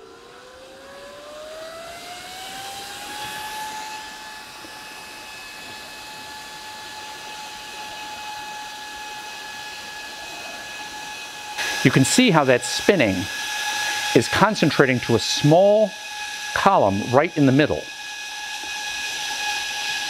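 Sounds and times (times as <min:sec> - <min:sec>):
computer fans whirring: 0:00.0 - 0:20.0
fan spinning up whine: 0:00.0 - 0:20.0
air hiss: 0:11.6 - 0:16.6.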